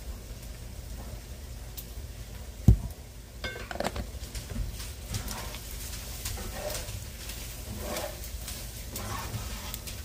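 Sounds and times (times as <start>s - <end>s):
spatula scraping a metal skillet: 5.1s - 10.0s.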